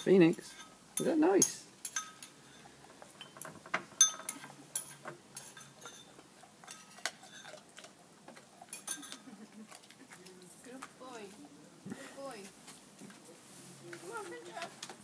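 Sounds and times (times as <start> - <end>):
dog eating from ceramic bowl: 1.9 - 11.6.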